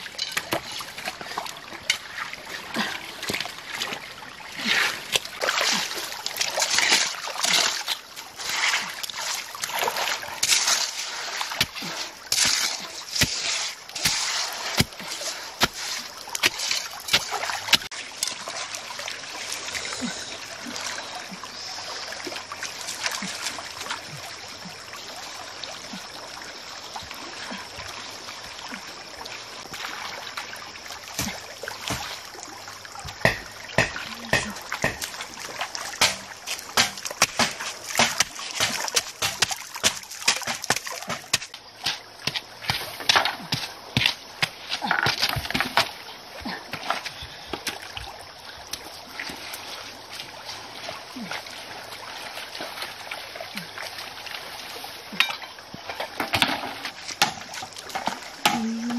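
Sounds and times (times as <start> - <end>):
mud splashing and squelching: 0.0 - 58.9
trickle of flowing water: 0.0 - 58.9.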